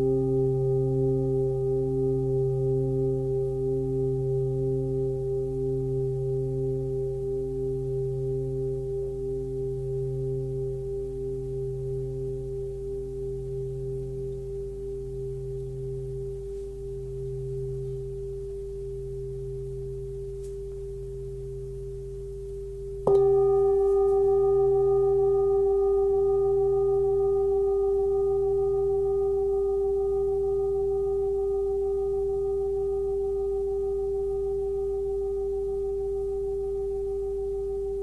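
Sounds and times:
singing bowl ringing: 0.0s - 22.4s, 23.0s - 38.0s
singing bowl struck: 23.0s - 38.0s.

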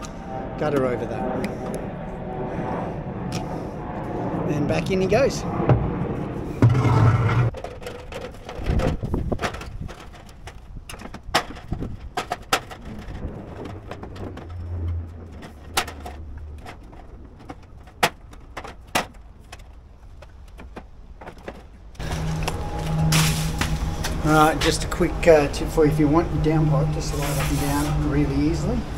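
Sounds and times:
metal gutter clicks and knocks: 7.5s - 22.4s.

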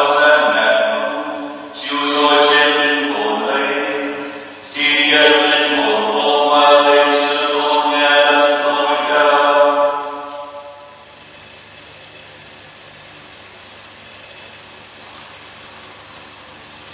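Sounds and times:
voices singing a hymn: 0.0s - 11.0s.

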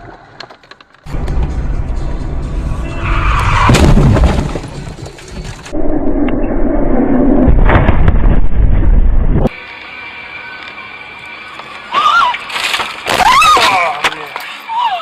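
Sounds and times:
road noise inside car: 0.0s - 5.3s
car crashing impacts: 1.1s - 5.6s.

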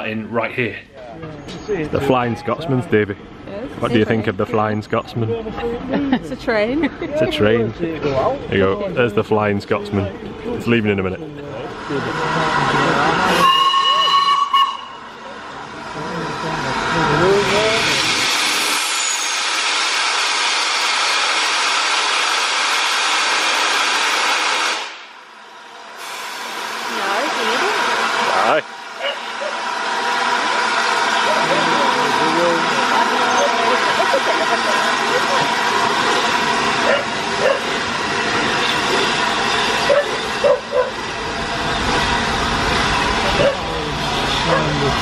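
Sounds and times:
steam locomotive hissing: 10.3s - 45.0s.

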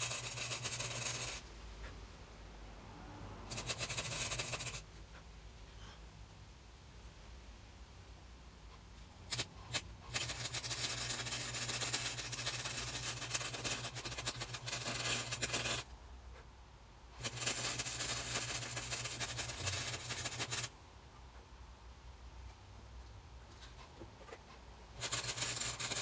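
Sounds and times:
arc welder crackling: 0.0s - 1.4s, 3.5s - 4.8s, 9.3s - 15.9s, 17.2s - 20.7s, 25.0s - 26.0s.

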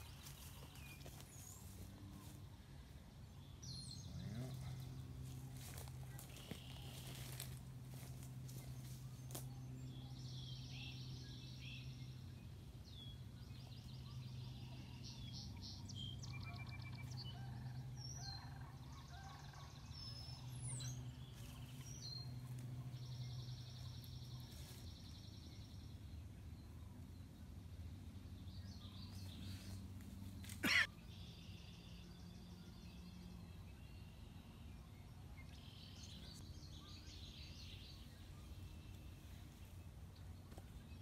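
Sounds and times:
birds chirping and trilling: 0.0s - 27.4s.

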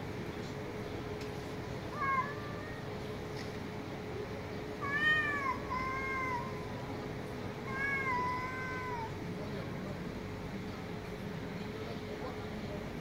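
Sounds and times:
cats meowing: 1.9s - 3.0s, 4.8s - 6.8s, 7.6s - 9.3s.

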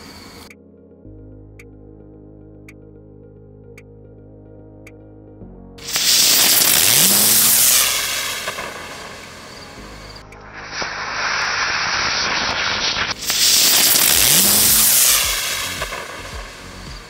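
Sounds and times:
rocket motor hissing flame: 5.8s - 9.6s, 10.6s - 16.3s.

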